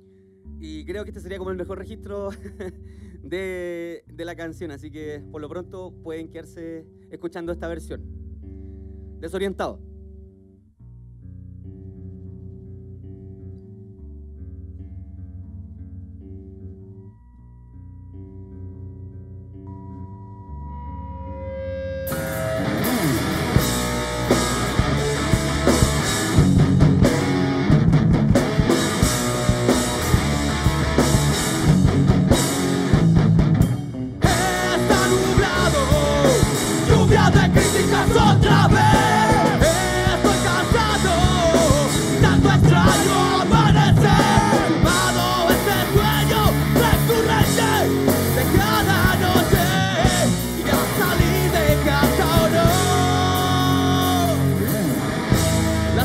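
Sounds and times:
rock band playing live: 21.6s - 56.0s
man singing: 34.2s - 54.7s.

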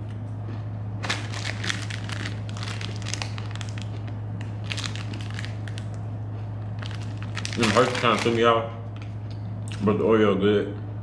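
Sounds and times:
steady low hum: 0.0s - 11.0s
plastic wrapper crinkling: 1.0s - 6.0s, 6.8s - 8.5s.

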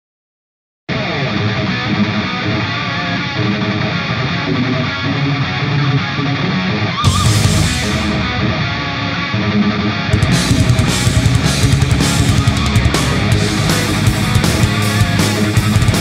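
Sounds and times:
electric guitar rock music: 0.9s - 16.0s.

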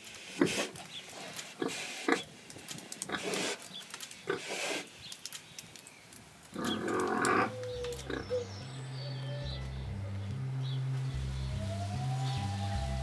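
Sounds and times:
pigs grunting: 0.3s - 2.3s, 3.0s - 3.6s, 6.6s - 8.4s
low music notes: 8.2s - 13.0s.

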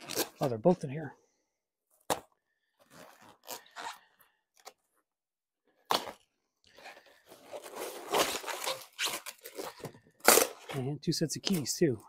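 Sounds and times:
packing material rustling: 6.7s - 10.7s
packaging tearing and crinkling: 7.5s - 10.7s.

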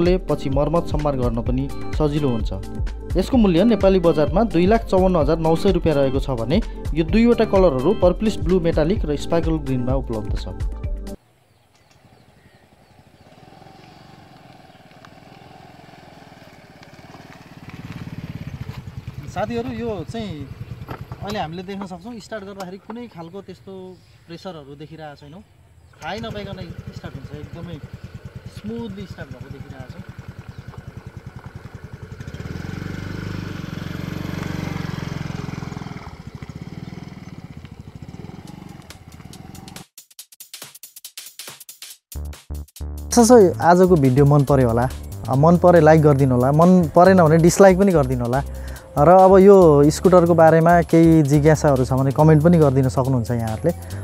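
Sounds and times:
scooter engine running at low revs: 11.9s - 22.6s, 25.9s - 39.8s, 44.3s - 54.0s.

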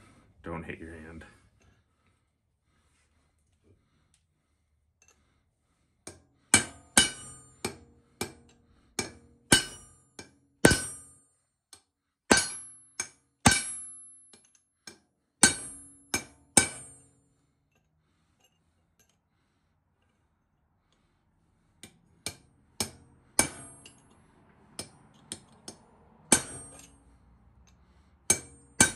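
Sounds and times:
hammer striking chisel on metal: 6.0s - 11.2s, 12.3s - 17.2s, 21.8s - 24.1s, 24.7s - 27.0s, 28.2s - 28.9s.

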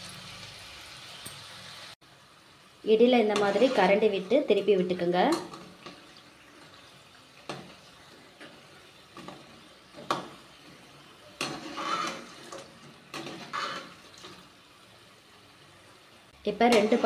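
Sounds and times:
fritters sizzling in hot oil: 0.0s - 17.0s
metal skimmer scraping a pan: 3.2s - 4.6s, 7.4s - 14.5s, 16.6s - 17.0s.

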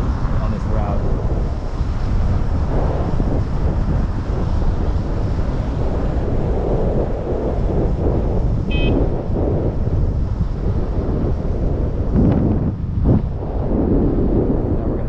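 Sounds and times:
wind buffeting microphone: 0.0s - 15.0s
short high beep: 8.7s - 9.0s.

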